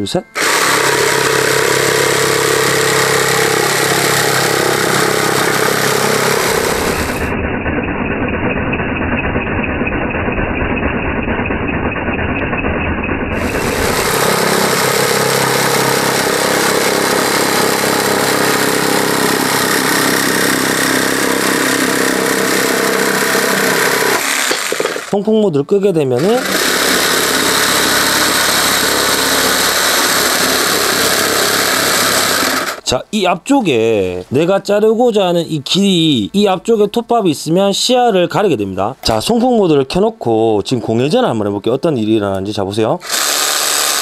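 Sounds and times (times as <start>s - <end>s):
jigsaw sawing through wood: 0.4s - 7.4s, 13.3s - 25.2s, 26.2s - 32.9s, 43.0s - 44.0s.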